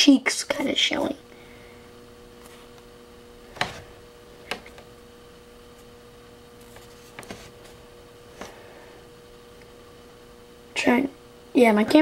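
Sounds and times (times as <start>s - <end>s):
faint electrical hum: 0.0s - 12.0s.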